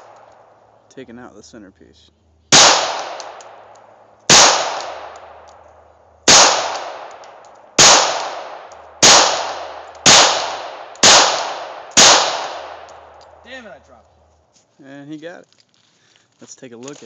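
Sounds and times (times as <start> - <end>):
pistol shots echoing: 2.5 - 13.4.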